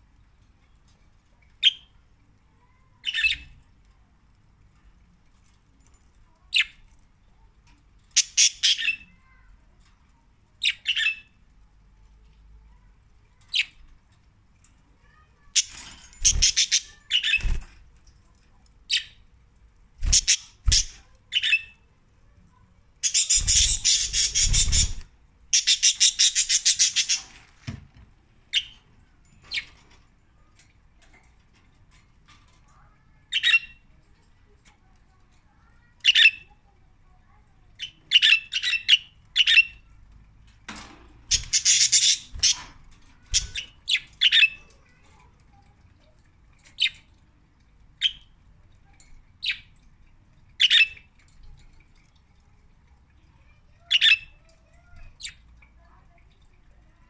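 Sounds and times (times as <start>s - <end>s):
harsh bird chattering: 23.0s - 27.4s, 41.3s - 42.6s
budgerigars chirping: 23.1s - 25.0s, 41.3s - 42.6s.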